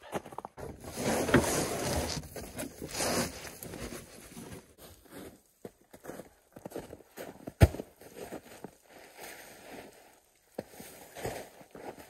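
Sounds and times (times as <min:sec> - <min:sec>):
mat dragged across truck bed: 0:00.6 - 0:04.1.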